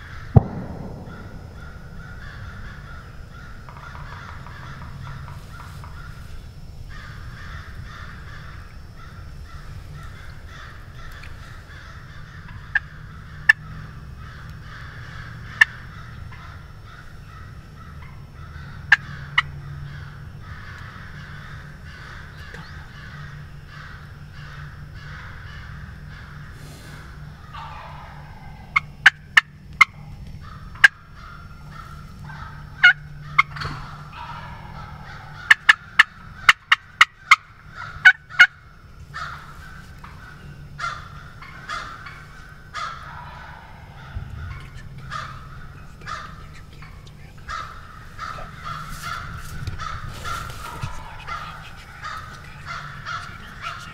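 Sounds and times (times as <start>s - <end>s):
turkey gobbling: 0.1s - 6.2s, 9.5s - 16.7s, 17.3s - 53.9s
turkey hen clucking: 27.4s - 38.6s, 40.0s - 53.9s.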